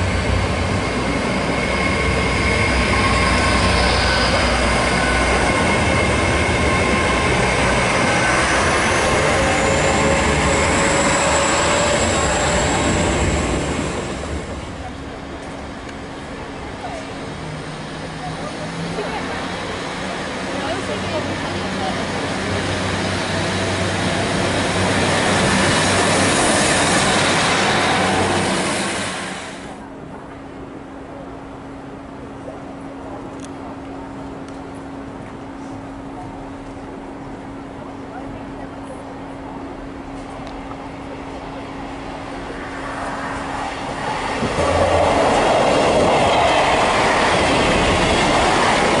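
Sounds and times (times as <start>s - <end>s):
diesel train engine droning: 0.0s - 49.0s
wheel-on-rail rumble: 40.2s - 49.0s.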